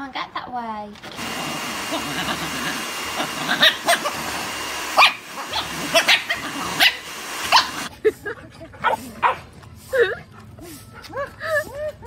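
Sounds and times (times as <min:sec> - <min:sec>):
small dog yipping: 0:05.0 - 0:07.9.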